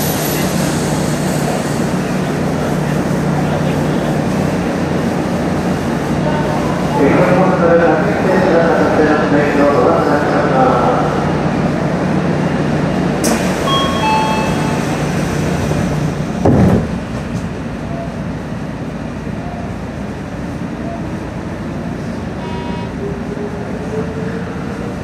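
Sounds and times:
electric train humming: 0:00.0 - 0:25.0
short beeps: 0:13.7 - 0:15.0
loud thump: 0:16.4 - 0:17.0.

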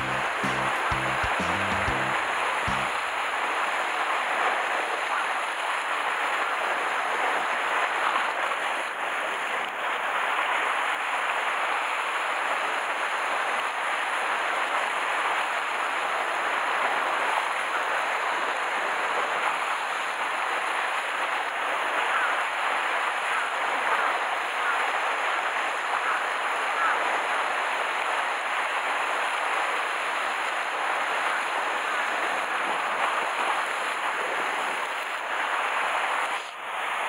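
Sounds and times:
waves washing over rocks: 0:25.1 - 0:37.0.

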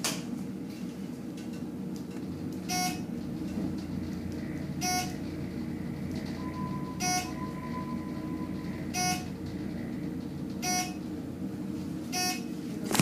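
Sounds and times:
elevator running hum: 0:00.0 - 0:13.0
short electronic beeps: 0:02.6 - 0:03.1, 0:04.6 - 0:11.1.

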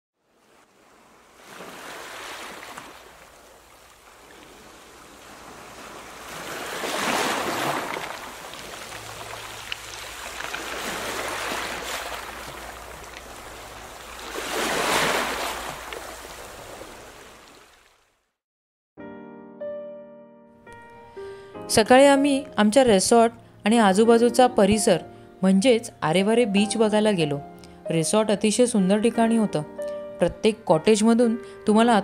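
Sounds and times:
waves breaking on sandy beach: 0:00.2 - 0:18.0.

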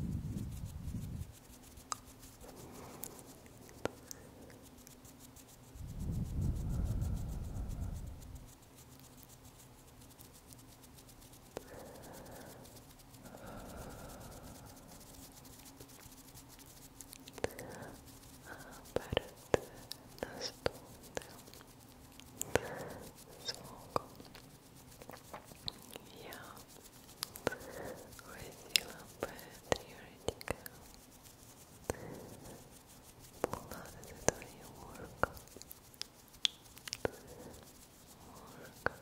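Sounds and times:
rubbing on microphone: 0:00.0 - 0:39.0
low rumbling: 0:05.8 - 0:08.4.

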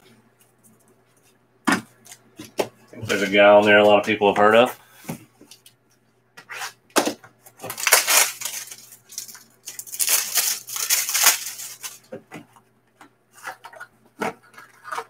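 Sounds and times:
plastic wrapping crinkling and tearing: 0:07.6 - 0:12.1.

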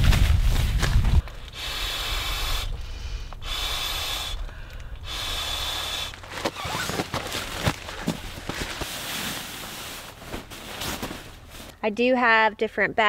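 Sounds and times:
short rustles: 0:06.2 - 0:11.8.

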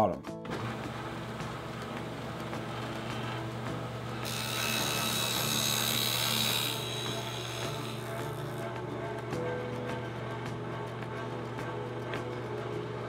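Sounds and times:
table saw cutting plywood: 0:00.5 - 0:09.4
table saw humming: 0:00.5 - 0:12.9.

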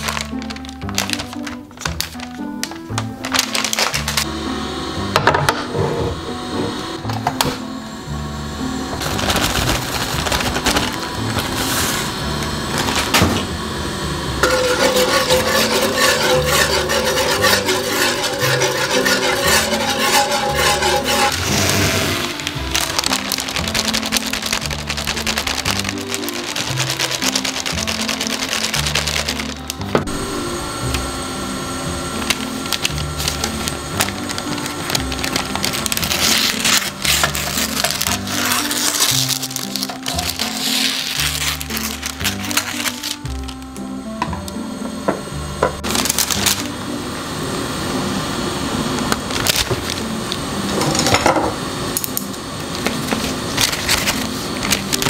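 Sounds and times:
paper rustling: 0:00.0 - 0:04.3, 0:09.0 - 0:12.1, 0:14.4 - 0:30.2, 0:32.2 - 0:43.7, 0:45.9 - 0:46.7, 0:49.2 - 0:50.2, 0:52.8 - 0:55.0
background music: 0:00.0 - 0:55.0
whisk scraping a frying pan: 0:14.4 - 0:29.8, 0:32.8 - 0:43.2
scissors snipping paper: 0:22.2 - 0:29.8, 0:32.3 - 0:43.6.

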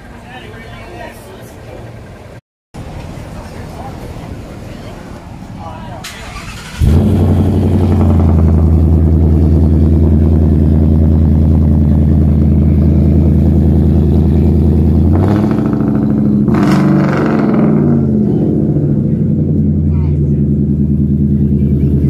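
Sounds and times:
engine starting and idling: 0:06.0 - 0:10.2.

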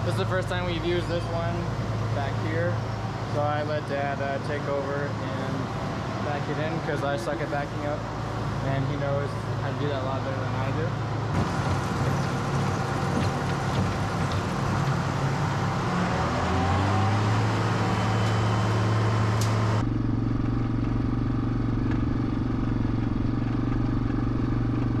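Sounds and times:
tractor engine running: 0:00.0 - 0:25.0.

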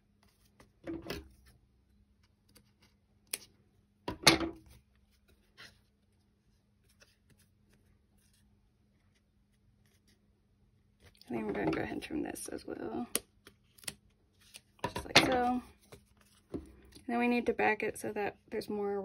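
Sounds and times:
paper handling: 0:15.4 - 0:17.0.

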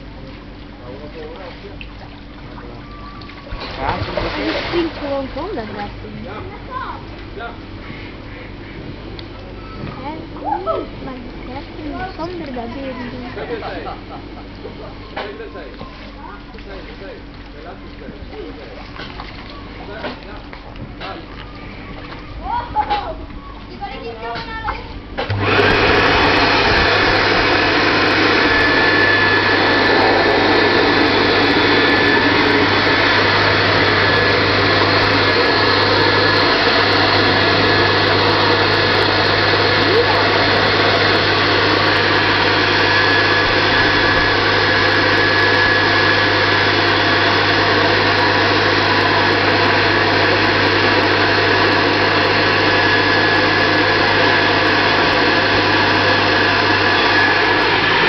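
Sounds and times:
electric air blower running: 0:03.6 - 0:08.6, 0:09.9 - 0:15.7, 0:25.2 - 0:58.0.

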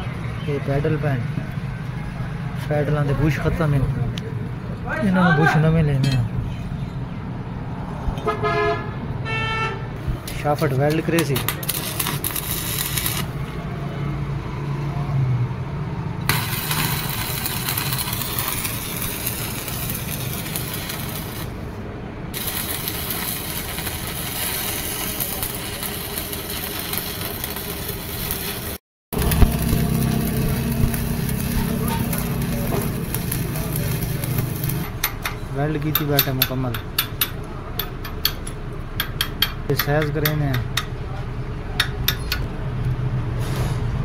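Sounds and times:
welding arc crackling and sizzling: 0:10.0 - 0:13.7, 0:16.3 - 0:21.7, 0:22.3 - 0:35.1
low hum: 0:29.2 - 0:34.9.

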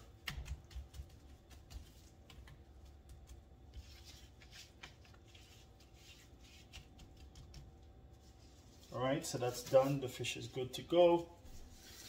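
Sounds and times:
hands patting fish fillets: 0:00.0 - 0:08.2.

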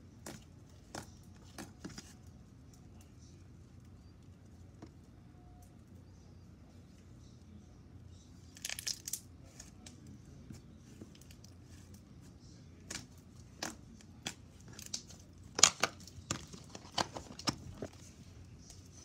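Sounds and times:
slime clicking and crackling: 0:08.5 - 0:10.0, 0:12.8 - 0:18.0.

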